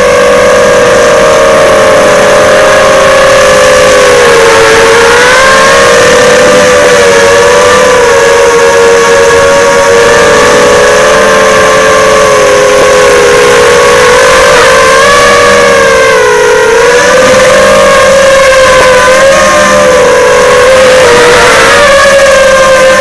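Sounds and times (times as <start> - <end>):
drone motors whining: 0.0 - 23.0.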